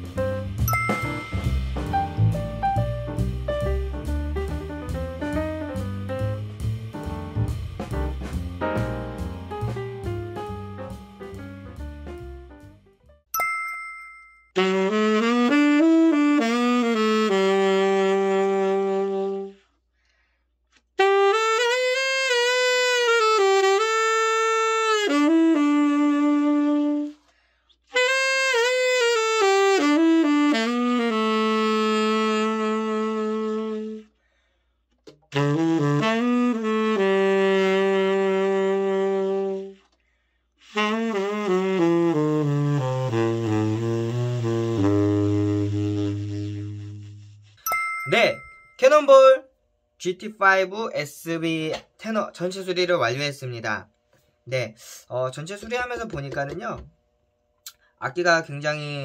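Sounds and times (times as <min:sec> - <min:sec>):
tenor saxophone solo: 0:14.6 - 0:19.7, 0:21.0 - 0:34.2, 0:35.3 - 0:39.9, 0:40.6 - 0:47.6.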